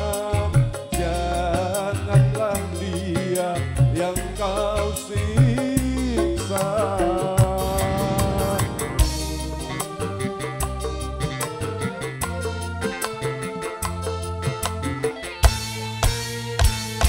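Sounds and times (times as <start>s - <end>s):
man singing: 0.0s - 10.1s
bass: 0.0s - 17.0s
electric guitar: 0.0s - 17.0s
hand drum rhythm: 0.0s - 17.0s
keyboard: 0.0s - 17.0s.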